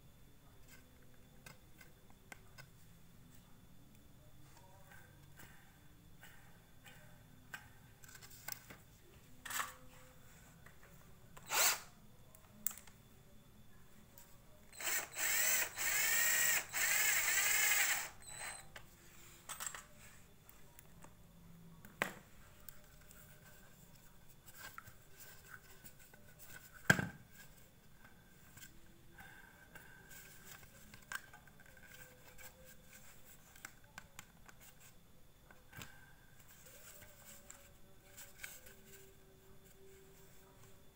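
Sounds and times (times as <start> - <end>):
cordless drill whining: 11.4 - 11.9, 14.8 - 18.7.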